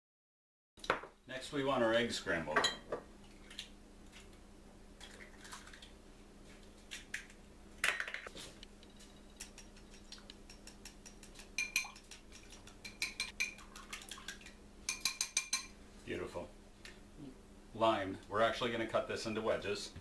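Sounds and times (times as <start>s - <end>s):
utensil clicking against glass bowl: 9.4s - 14.0s, 14.9s - 15.7s.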